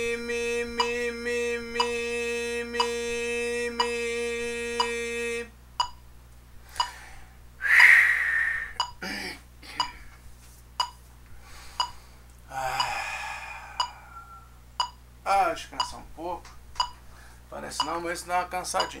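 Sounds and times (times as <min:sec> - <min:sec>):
metronome clicking: 0:00.8 - 0:01.1, 0:05.8 - 0:06.0, 0:08.8 - 0:09.0, 0:10.8 - 0:11.0, 0:14.8 - 0:15.0, 0:15.8 - 0:16.1, 0:16.8 - 0:17.0, 0:17.7 - 0:18.1, 0:18.8 - 0:19.0
person breathing out: 0:06.7 - 0:09.4, 0:11.4 - 0:14.4.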